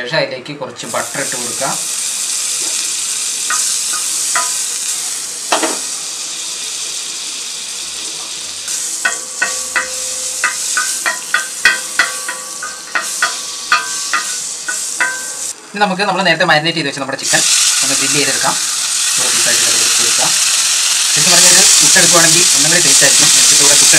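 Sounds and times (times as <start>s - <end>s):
butter sizzling on hot pan: 0.8s - 15.6s, 17.2s - 23.9s.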